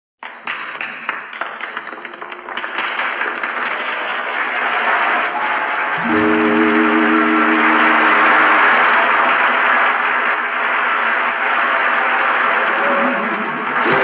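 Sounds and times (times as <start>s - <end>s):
applause: 0.2s - 14.0s
held music chord: 5.9s - 9.4s.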